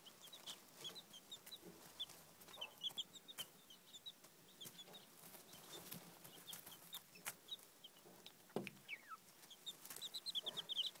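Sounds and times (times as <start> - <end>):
baby chicks peeping: 0.0 - 11.0.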